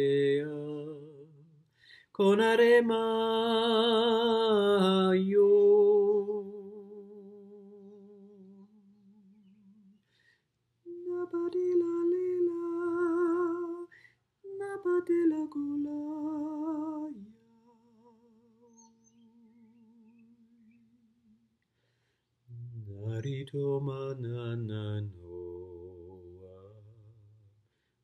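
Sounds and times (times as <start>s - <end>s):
man singing wordless tones: 0.0s - 1.6s, 2.2s - 8.6s, 10.9s - 13.9s, 14.5s - 20.0s, 22.5s - 27.6s.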